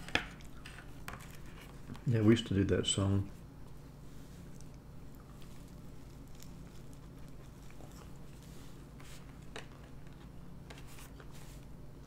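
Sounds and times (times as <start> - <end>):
person chewing croissant: 4.2 - 10.4.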